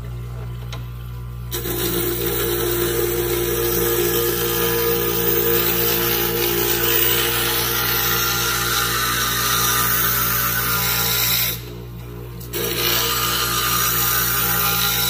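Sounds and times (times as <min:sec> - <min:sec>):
motor hum: 0:00.0 - 0:15.0
glass grinding: 0:01.6 - 0:10.8.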